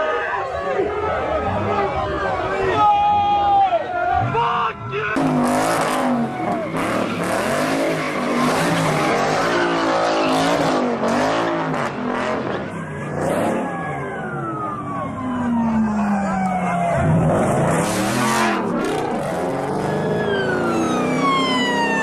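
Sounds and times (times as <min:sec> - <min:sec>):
car engine revving: 0:05.2 - 0:22.0.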